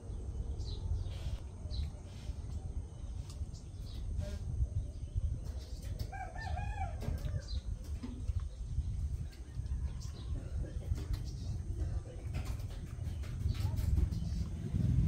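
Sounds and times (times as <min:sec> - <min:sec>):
steady low rumble: 0:00.0 - 0:15.0
rooster crowing: 0:06.1 - 0:07.5.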